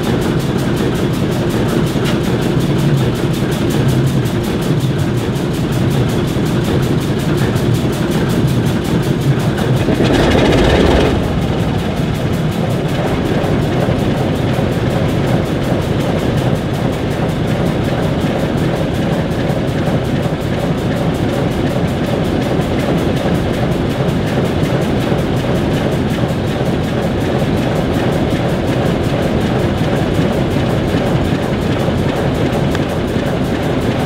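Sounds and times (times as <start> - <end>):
diesel engines idling: 0.0 - 34.0
loud rush: 9.4 - 15.2.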